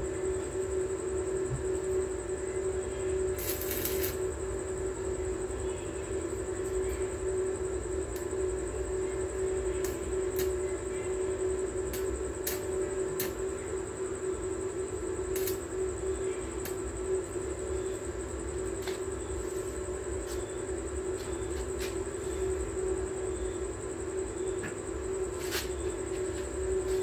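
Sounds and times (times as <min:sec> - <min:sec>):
mechanical hum: 0:00.0 - 0:27.0.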